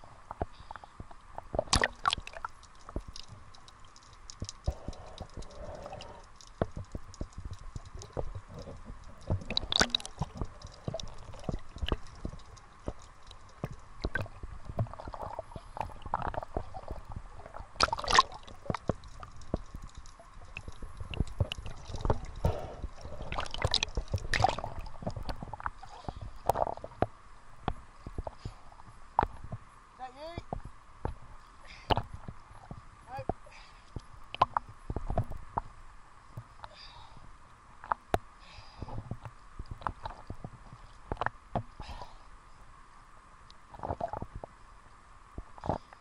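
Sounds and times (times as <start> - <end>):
water splashes: 0.0 - 27.2
crackles: 0.0 - 46.0
sea water sloshing against camera: 0.1 - 29.7.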